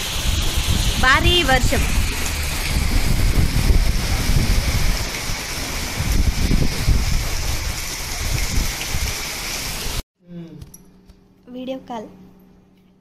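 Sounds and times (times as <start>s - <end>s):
wind gusting on microphone: 0.0s - 9.3s
heavy rain pouring: 0.0s - 10.0s.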